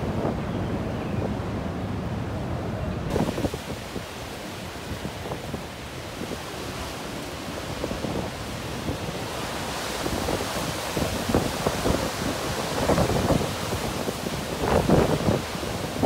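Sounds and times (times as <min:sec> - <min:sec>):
wind gusts buffeting microphone: 0:00.0 - 0:16.0
wind thumps on microphone: 0:03.1 - 0:06.4, 0:10.0 - 0:16.0.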